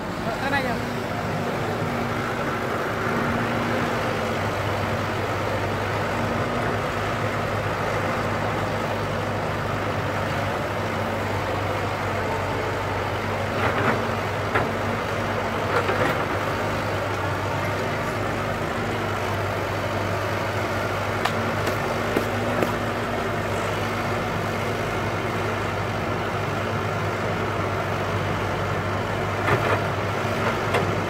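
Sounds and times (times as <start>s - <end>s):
excavator diesel engine running: 0.0s - 31.0s.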